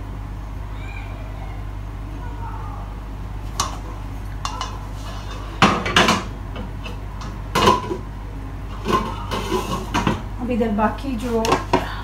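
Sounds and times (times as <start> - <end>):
pots and utensils clinking: 4.4 - 8.0, 8.7 - 10.2.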